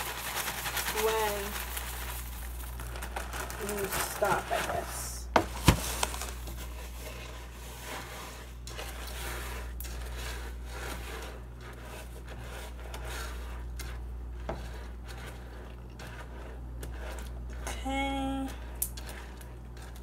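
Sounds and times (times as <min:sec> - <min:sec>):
steady low hum: 0:00.0 - 0:20.0
spoon scraping in pot: 0:06.5 - 0:17.7.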